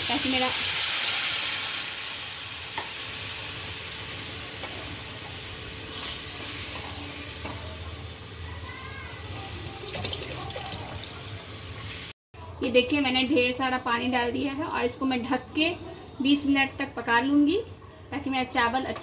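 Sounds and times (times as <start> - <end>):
water sizzling in hot pan: 0.0 - 12.2
water pouring: 9.7 - 11.2.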